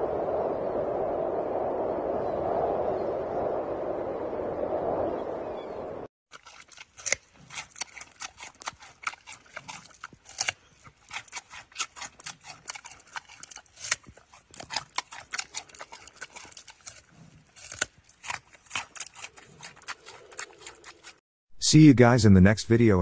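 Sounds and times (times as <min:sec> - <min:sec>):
panda crunching carrot: 0:06.3 - 0:21.2.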